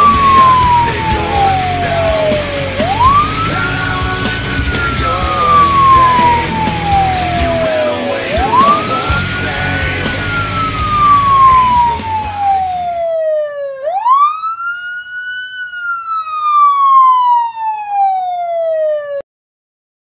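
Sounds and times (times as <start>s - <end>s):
dense noisy backing: 0.0s - 12.9s
siren wailing: 0.0s - 19.2s.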